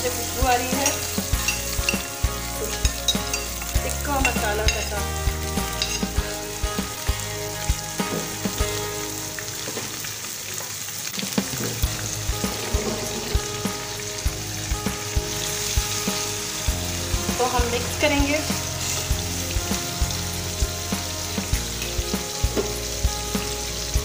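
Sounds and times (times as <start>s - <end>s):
meat sizzling in hot oil: 0.0s - 24.0s.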